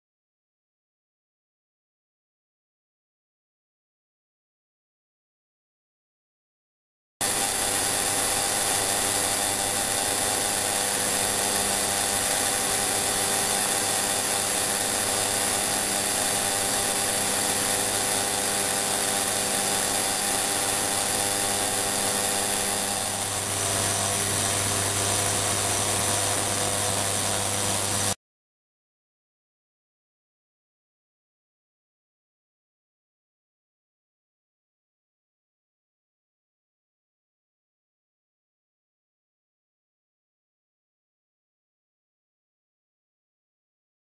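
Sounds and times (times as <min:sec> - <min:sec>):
low hum: 0:07.2 - 0:28.2
ultrasonic cleaner whine: 0:07.2 - 0:28.2.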